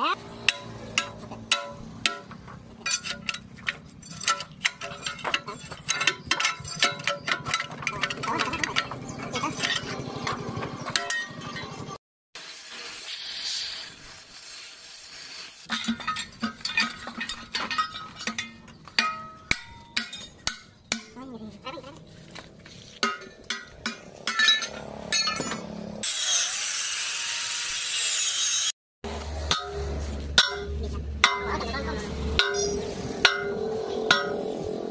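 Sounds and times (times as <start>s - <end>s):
hammer strikes on steel: 0.4s - 3.3s, 18.2s - 21.2s, 23.0s - 25.7s, 29.1s - 31.6s, 32.3s - 34.6s
gas cutting torch hissing: 12.4s - 15.7s
angle grinder on metal: 24.2s - 30.3s.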